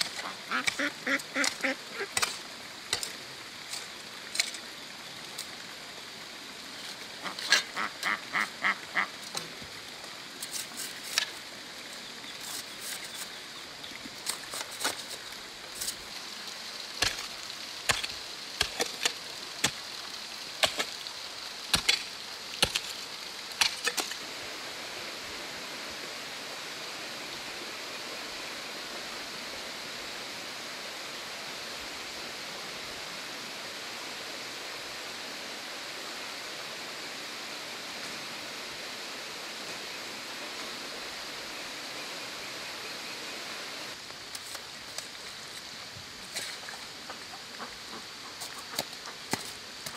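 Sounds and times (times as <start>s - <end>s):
hoe striking soil: 0.0s - 4.6s, 17.0s - 19.8s, 20.6s - 21.0s, 21.7s - 23.0s, 23.6s - 24.2s, 48.7s - 49.9s
duck quacking: 0.2s - 2.1s, 7.2s - 9.1s.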